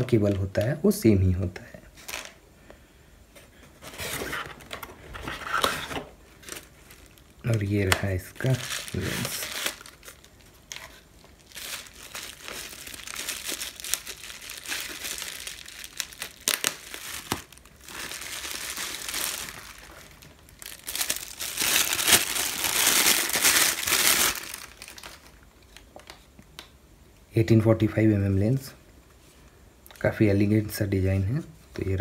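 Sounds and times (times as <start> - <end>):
plastic wrapping crinkling: 2.0 - 2.4, 3.8 - 26.7.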